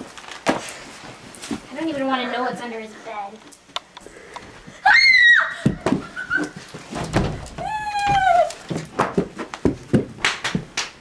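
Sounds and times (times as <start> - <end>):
girl screaming: 4.8 - 5.8, 7.6 - 8.6
thumping footsteps running: 5.6 - 10.8.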